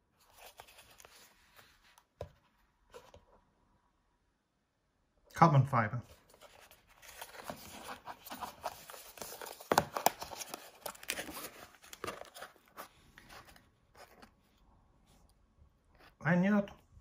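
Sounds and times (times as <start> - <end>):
cardboard box being opened: 6.3 - 14.3.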